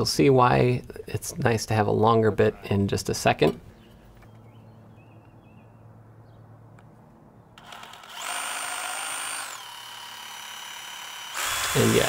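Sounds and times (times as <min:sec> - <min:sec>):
rotary hammer drilling concrete: 0:07.6 - 0:12.0.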